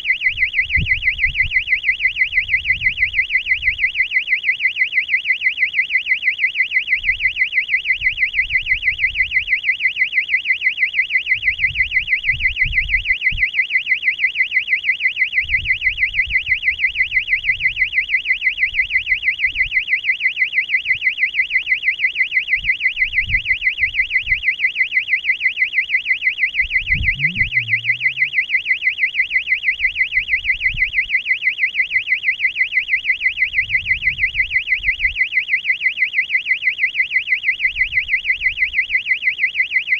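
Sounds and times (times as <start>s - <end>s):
warbling alarm buzzer: 26.0s - 30.9s
faint low rumbles: 26.7s - 28.4s.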